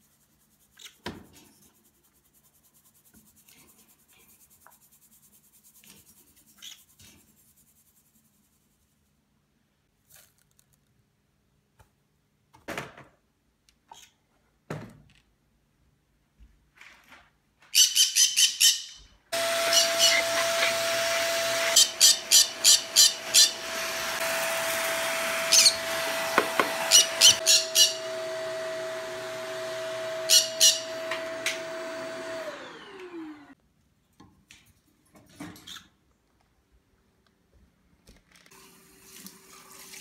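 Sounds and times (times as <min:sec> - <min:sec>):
upright vacuum cleaner running: 0:19.4 - 0:33.6
pet birds squawking: 0:19.6 - 0:20.7, 0:21.8 - 0:23.7, 0:25.5 - 0:25.9, 0:26.8 - 0:28.2, 0:30.3 - 0:31.0.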